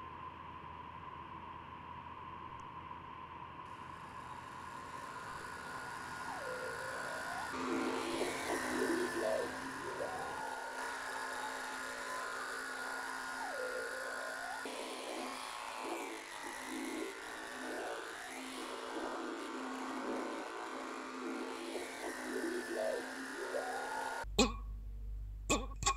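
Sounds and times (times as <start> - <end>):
electric buzzing drone: 3.7 - 24.3
high held tone: 24.2 - 24.8, 25.5 - 25.9.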